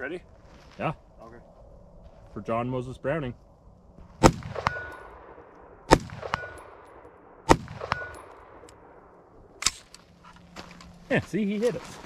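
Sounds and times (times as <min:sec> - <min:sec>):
rifle shots: 0:04.2 - 0:09.9
bullet ringing on steel target: 0:04.6 - 0:05.2, 0:06.2 - 0:07.0, 0:07.8 - 0:08.5.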